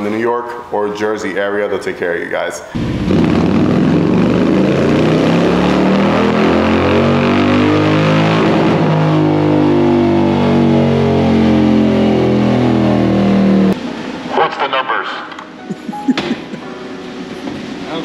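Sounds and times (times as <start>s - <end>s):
motorcycle engine running hard: 2.8s - 13.8s.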